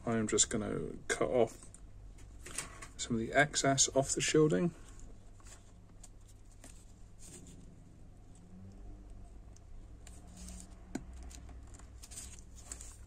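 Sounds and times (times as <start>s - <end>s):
cable handling rustles: 4.8s - 7.7s, 9.5s - 13.0s.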